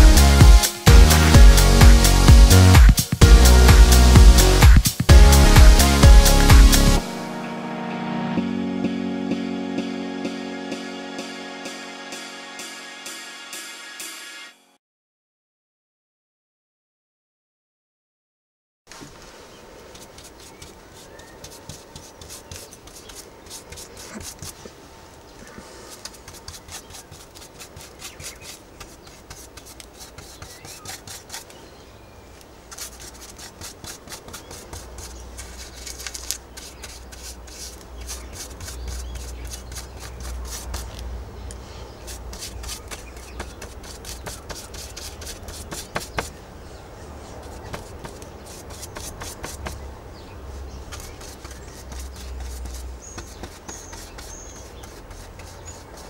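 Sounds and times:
rubbing strokes on paper: 19.0 - 24.8, 25.4 - 31.6, 32.6 - 41.0, 41.7 - 46.4, 47.2 - 56.0.

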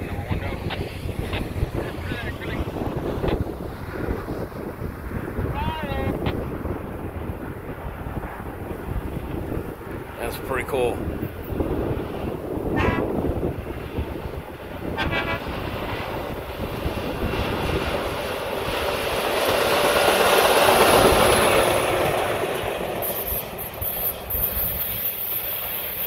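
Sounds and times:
rail vehicle rumbling past: 11.0 - 26.0.

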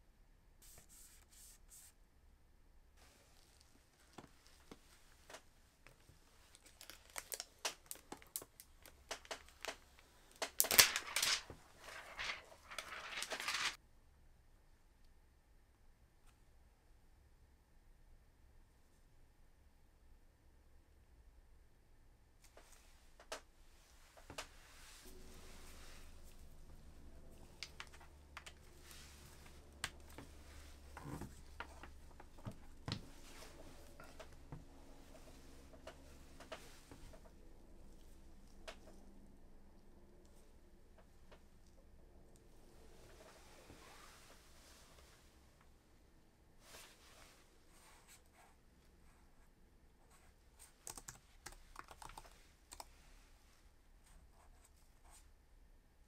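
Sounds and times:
plastic sheet peeling and crinkling: 6.4 - 13.8
soft rustle: 10.8 - 13.8, 22.5 - 39.1, 42.8 - 45.7, 46.6 - 49.2
faint low hum: 11.3 - 56.0.

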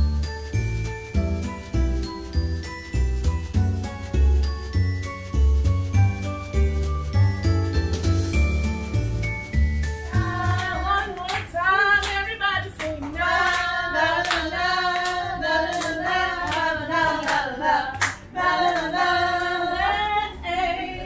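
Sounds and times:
rhythmic hand claps: 9.0 - 20.2.

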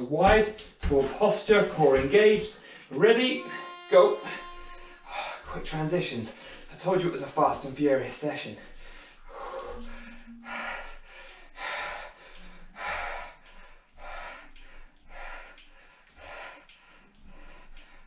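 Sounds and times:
man breathing hard: 6.3 - 6.8, 8.6 - 18.0.

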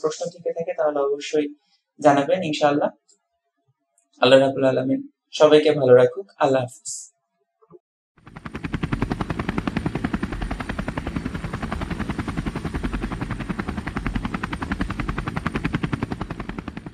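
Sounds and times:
propeller aircraft engine drone: 8.2 - 16.9.

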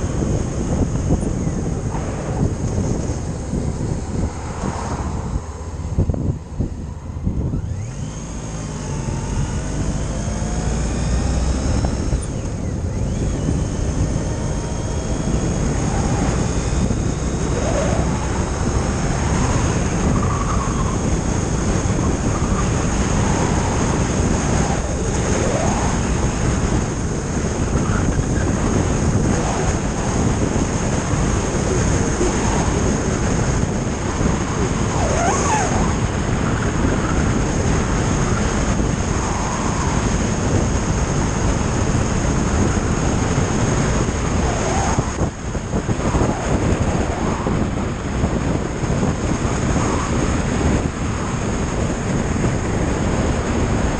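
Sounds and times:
motorcycle engine drone: 0.0 - 53.9
wind rush on microphone: 0.0 - 53.9.

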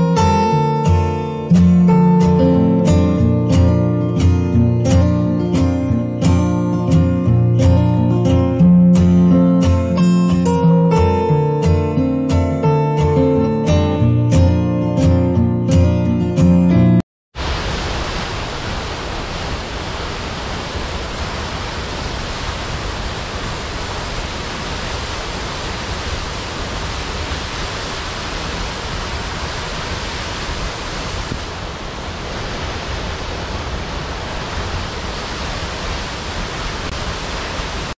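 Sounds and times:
waterfall rushing onto rocks: 17.4 - 38.0.

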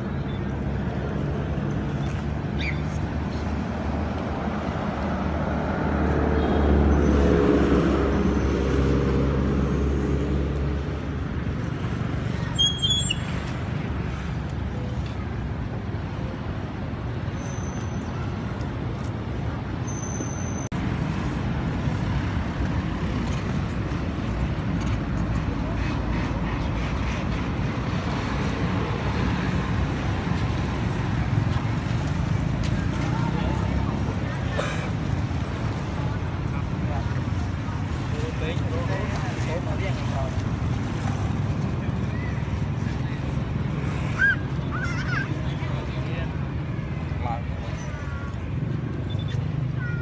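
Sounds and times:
road traffic: 0.0 - 50.0
motor vehicle passing: 2.3 - 14.4.

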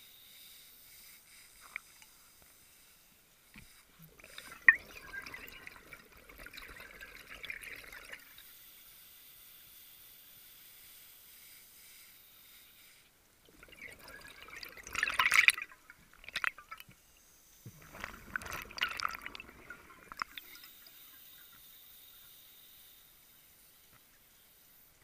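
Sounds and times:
diver's breath bubbling underwater: 17.8 - 20.6.

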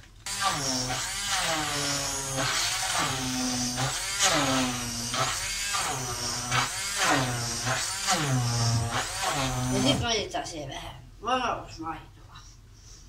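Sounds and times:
electric hand mixer running: 0.3 - 10.0.

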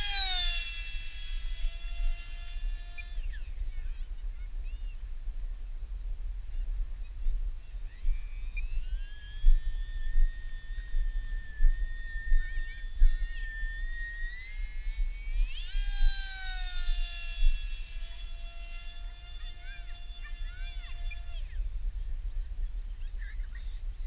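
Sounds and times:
electric motor and propeller whine: 0.0 - 4.6, 8.1 - 21.8
wind rumble on microphone: 0.0 - 24.0.

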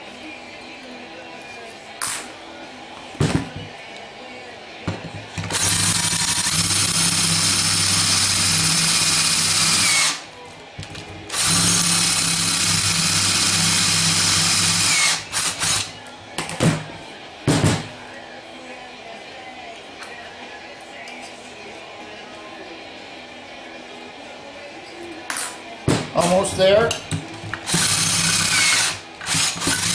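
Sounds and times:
electric drill drilling into metal: 5.5 - 10.2, 11.3 - 15.9, 27.6 - 29.9.

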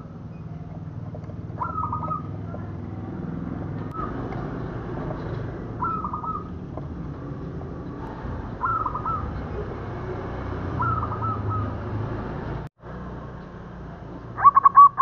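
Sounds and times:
dove cooing: 0.8 - 2.8, 5.0 - 7.0, 8.5 - 9.7, 10.7 - 12.0, 14.4 - 15.0.

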